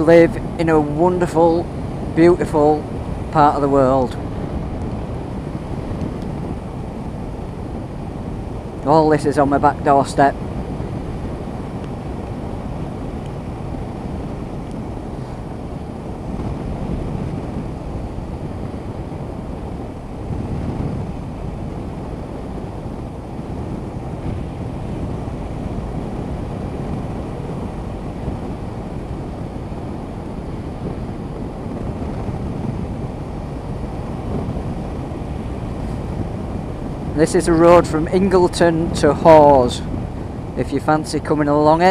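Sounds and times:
road noise: 0:00.0 - 0:41.9
wind rush over microphone: 0:00.0 - 0:41.9.

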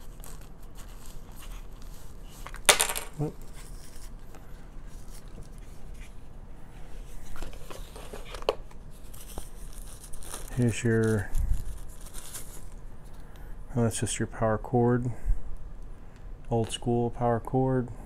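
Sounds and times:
packaging rustle: 0:07.0 - 0:12.8.

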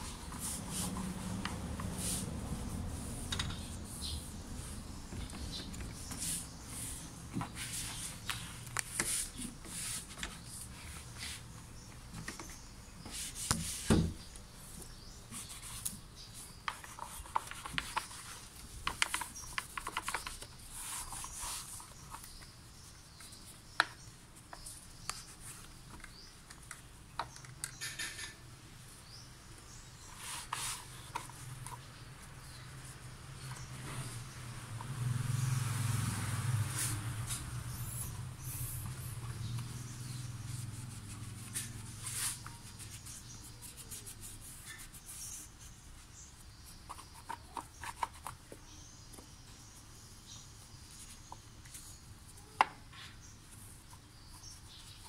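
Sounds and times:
cloth wiping plastic: 0:00.0 - 0:11.4.

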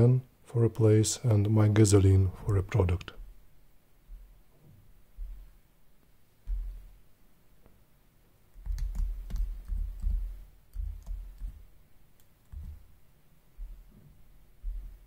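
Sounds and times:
laptop keyboard typing: 0:08.6 - 0:12.9.

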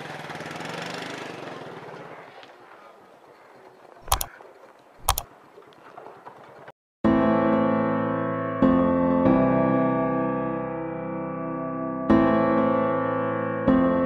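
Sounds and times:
passing vehicle engine: 0:00.0 - 0:02.4.

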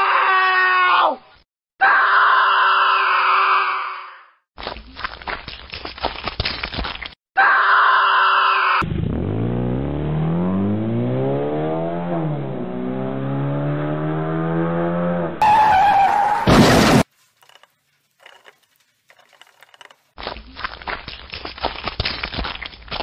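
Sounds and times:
cartoon car engine revving: 0:08.8 - 0:16.7
tyre screech: 0:15.4 - 0:17.0.

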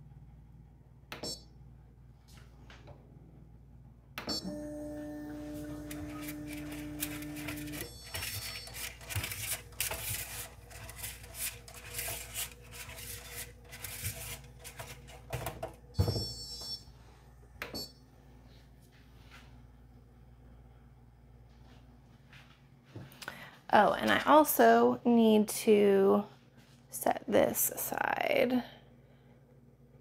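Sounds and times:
printer steady hum: 0:04.4 - 0:16.1.

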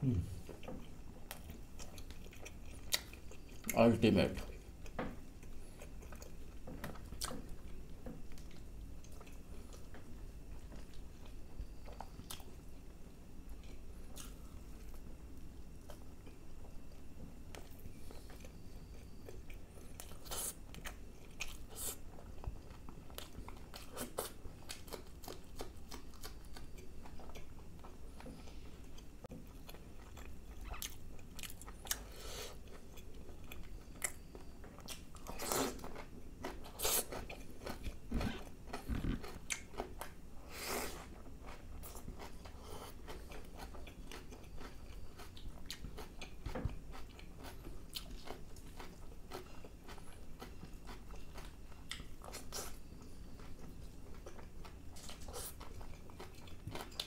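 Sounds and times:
faint low hum: 0:00.0 - 0:57.0
close chewing and biting: 0:17.5 - 0:28.3, 0:40.8 - 0:57.0.

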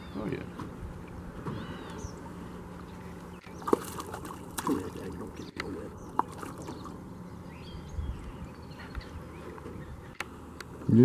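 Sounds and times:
fish splashing at surface: 0:03.6 - 0:07.0.

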